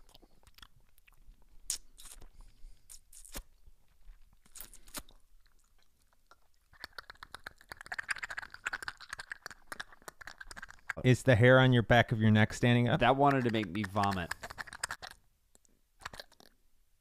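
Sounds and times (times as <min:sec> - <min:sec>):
tongue clicks: 0:00.0 - 0:02.3, 0:02.9 - 0:03.5, 0:04.4 - 0:11.0, 0:13.3 - 0:16.6
small clicking mouth noises: 0:00.0 - 0:03.5, 0:04.4 - 0:11.1, 0:13.0 - 0:16.6
lip smacks: 0:00.0 - 0:03.6, 0:04.4 - 0:11.0, 0:13.0 - 0:16.6.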